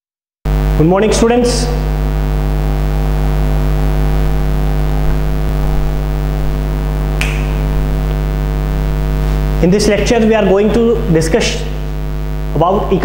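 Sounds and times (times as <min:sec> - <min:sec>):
electrical mains hum: 0:00.5 - 0:13.0
sharp click: 0:07.2 - 0:07.6.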